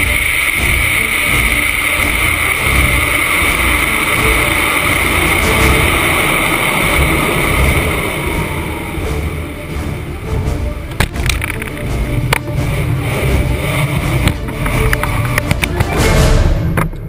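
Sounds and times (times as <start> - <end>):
air rushing with whistle: 0.0 - 11.0.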